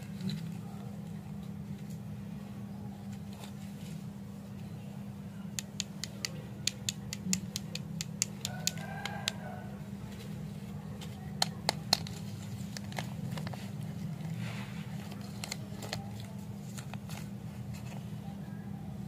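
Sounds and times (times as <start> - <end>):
steady low hum: 0.0 - 19.0
lollipop wrappers clicking: 5.6 - 9.4.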